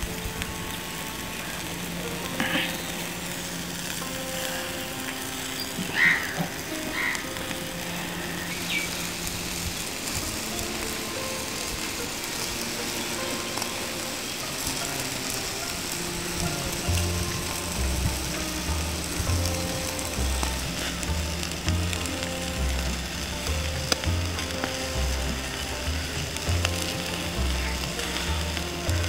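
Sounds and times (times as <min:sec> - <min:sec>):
background music: 0:00.0 - 0:29.0
fish sizzling over embers: 0:00.0 - 0:29.0
heavy low beat: 0:16.0 - 0:29.0.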